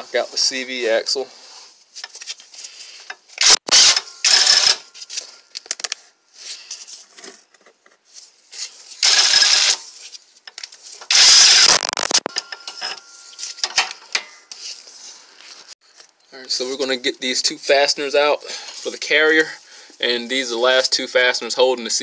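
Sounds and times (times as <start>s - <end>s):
impact wrench bursts: 3.4s - 4.8s, 9.0s - 9.8s, 11.1s - 12.4s.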